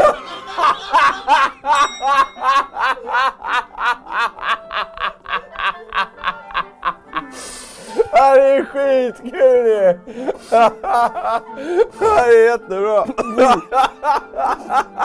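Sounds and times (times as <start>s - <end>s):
man laughing hard: 0.0s - 7.3s, 10.2s - 12.3s, 13.0s - 15.0s
noisy breath: 7.2s - 8.1s, 10.0s - 10.7s, 11.5s - 12.0s.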